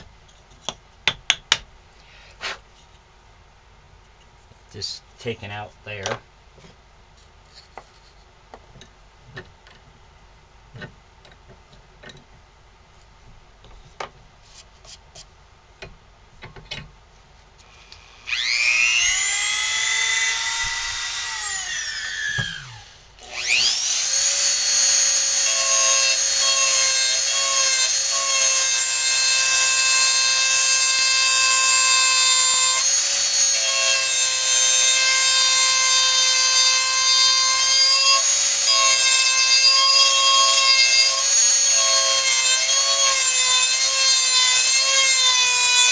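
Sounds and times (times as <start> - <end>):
rotary tool drilling into wood: 17.7 - 45.9.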